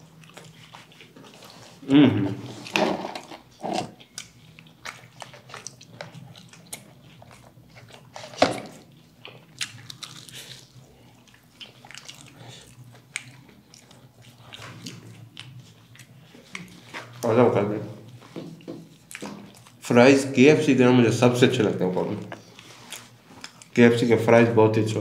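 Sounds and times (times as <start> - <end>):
crunchy bites and chewing: 2.5 - 17.3.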